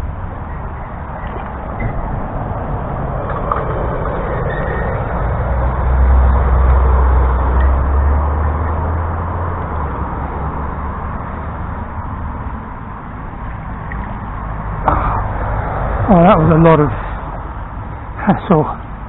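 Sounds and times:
low rumble: 0.0 - 8.3
stream water running: 12.9 - 18.7.

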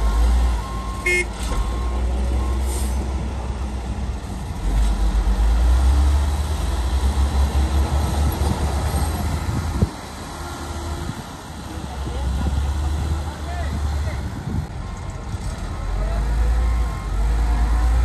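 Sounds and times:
reversing alarm beeping: 0.0 - 2.7, 14.8 - 18.0
heavy diesel truck engine: 0.0 - 18.0
short horn toot: 1.0 - 1.4.

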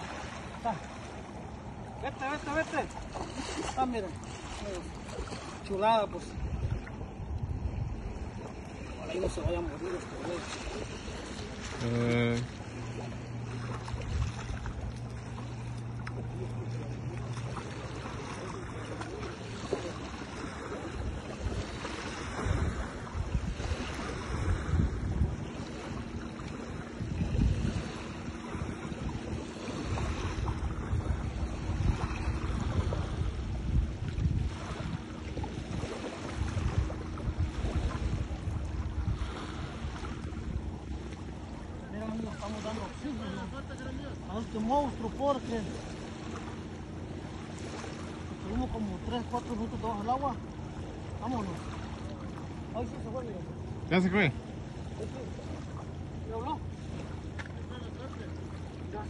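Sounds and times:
wind buffeting microphone: 1.1 - 11.8, 12.8 - 43.2.

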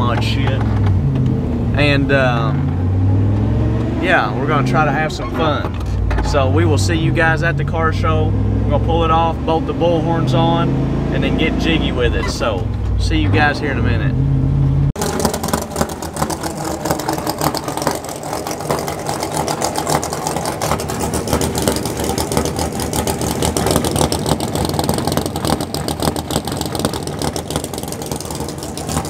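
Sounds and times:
engine idling: 14.9 - 29.0.

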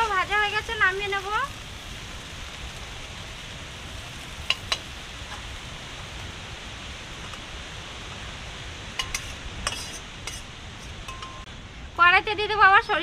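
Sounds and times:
oil sizzling in a wok: 0.0 - 13.0
metal spatula clinking on pan: 9.0 - 11.4.

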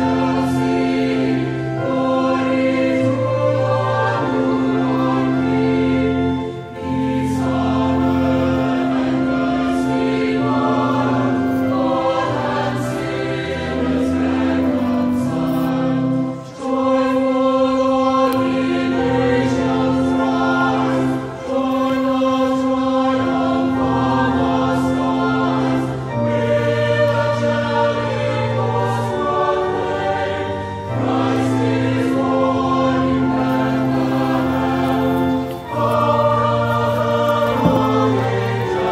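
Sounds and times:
choir singing held chords: 0.0 - 38.9.

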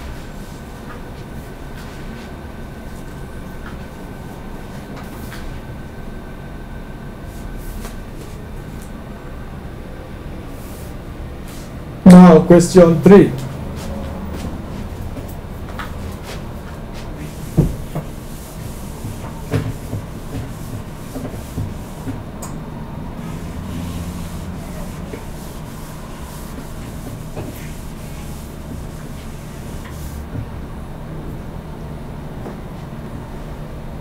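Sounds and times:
eraser rubbing on whiteboard: 17.2 - 22.2, 23.2 - 30.2.

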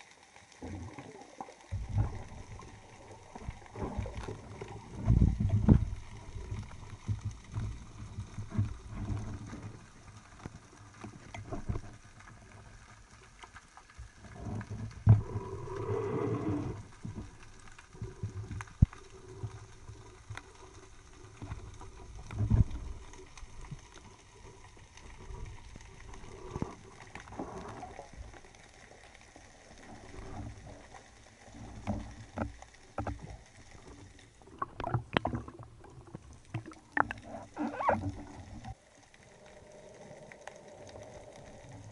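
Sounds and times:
underwater swirling noise: 0.5 - 12.8, 14.2 - 41.9
underwater thuds and knocks: 3.7 - 9.7, 31.8 - 33.4, 34.5 - 38.7.

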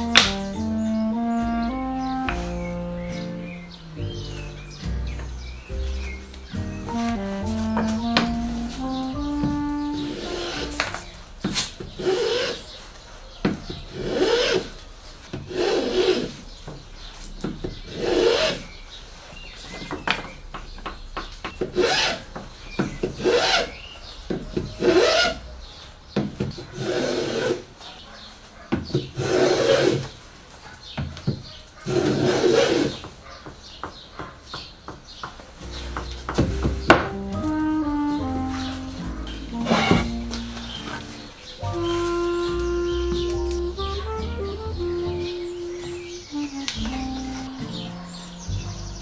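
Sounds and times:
hand plane shaving wood: 6.8 - 11.0, 26.8 - 27.7.

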